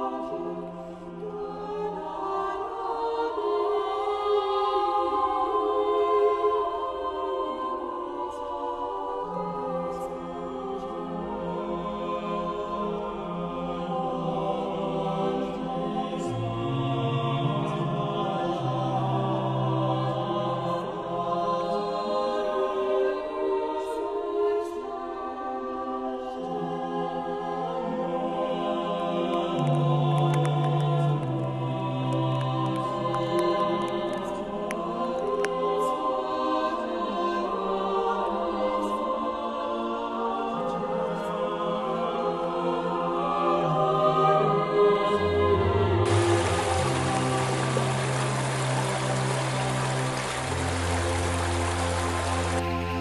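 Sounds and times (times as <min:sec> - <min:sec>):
slow sustained music chords: 0:00.0 - 0:53.0
slow held music chords: 0:45.6 - 0:53.0.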